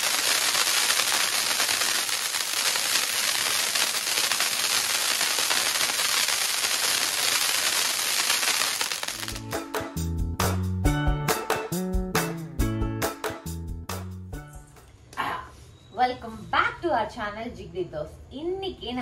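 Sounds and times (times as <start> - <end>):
firecrackers crackling: 0.0 - 9.6.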